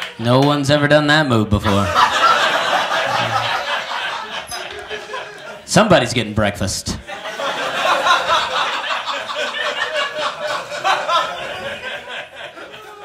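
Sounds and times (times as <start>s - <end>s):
audience laughing: 1.5s - 5.7s, 7.0s - 13.0s.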